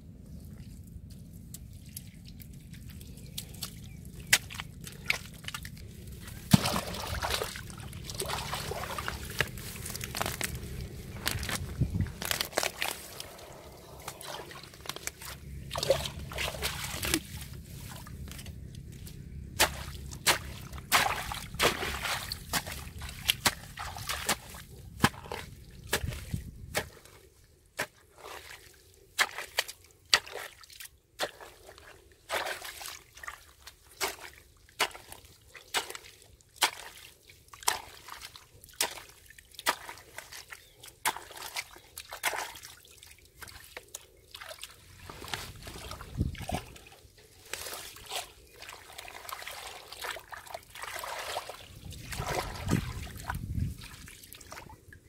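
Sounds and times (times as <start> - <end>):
low steady rumble: 0.0 - 27.7
water dripping and trickling: 0.5 - 10.4, 32.4 - 55.0
spade scooping wet mud: 1.4 - 54.7.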